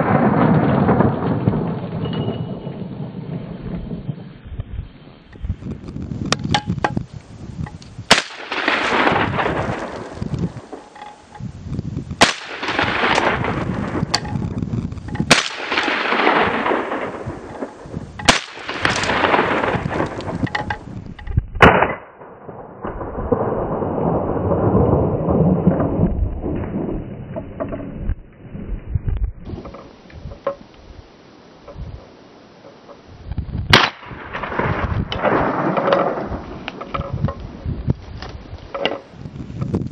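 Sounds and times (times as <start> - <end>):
gunshots with rumbling echo: 0.0 - 5.0, 8.0 - 11.4, 12.1 - 28.2, 33.4 - 37.9.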